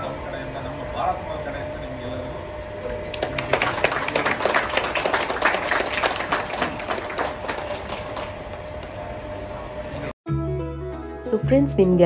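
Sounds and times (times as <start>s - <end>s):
small group applauding: 2.8s - 9.2s.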